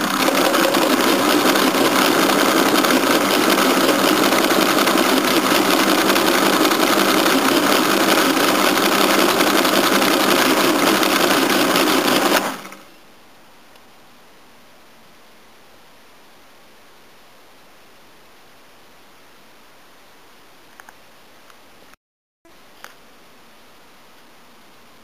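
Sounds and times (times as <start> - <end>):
mechanical calculator clattering: 0.0 - 12.8.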